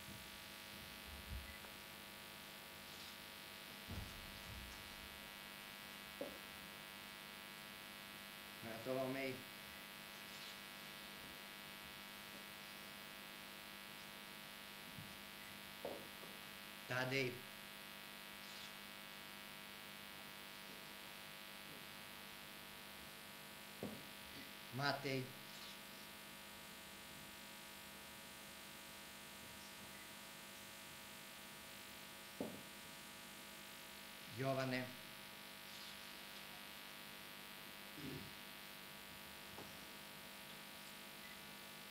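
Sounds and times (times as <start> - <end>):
electrical mains hum: 0.0 - 41.9
soft thump: 3.9 - 4.7.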